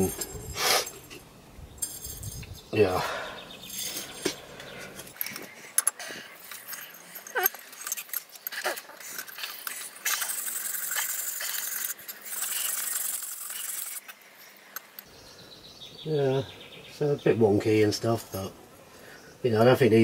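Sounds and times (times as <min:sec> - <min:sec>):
pliers and hammer clinking on metal: 0:00.0 - 0:02.6, 0:03.5 - 0:15.1.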